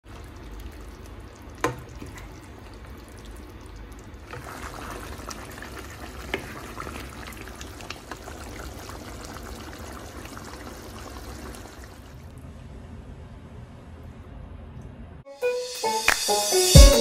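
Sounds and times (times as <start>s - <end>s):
stew bubbling in a pot: 0.0s - 12.3s.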